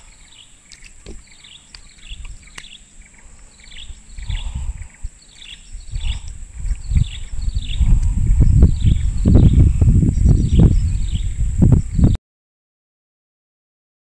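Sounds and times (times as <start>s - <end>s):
falling chirping calls: 0.0s - 12.2s
high-pitched insect drone: 1.3s - 12.0s.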